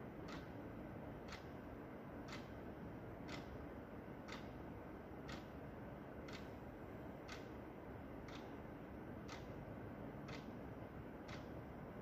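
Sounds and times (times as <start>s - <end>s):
wall clock ticking: 0.2s - 0.6s, 1.2s - 1.6s, 2.2s - 2.5s, 3.2s - 3.6s, 4.2s - 4.6s, 5.2s - 5.6s, 6.2s - 6.5s, 7.2s - 7.6s, 8.2s - 8.6s, 9.2s - 9.6s, 10.2s - 11.6s.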